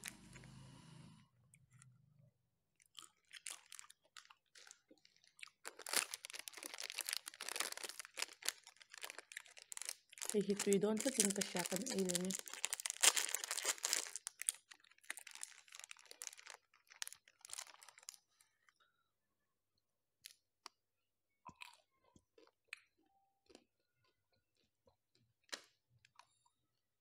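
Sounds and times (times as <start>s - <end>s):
ice-cream bar crunching and chewing: 2.8s - 18.7s, 21.5s - 26.6s
plastic wrapper rustling: 3.2s - 18.5s.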